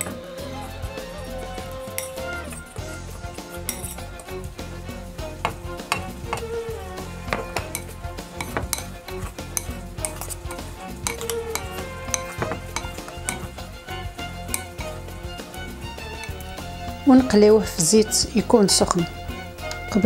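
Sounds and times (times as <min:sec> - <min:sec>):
metal spoon clinking on bowl: 0:01.9 - 0:02.8, 0:03.7 - 0:04.0, 0:05.4 - 0:06.6, 0:07.3 - 0:13.6, 0:14.5 - 0:14.8.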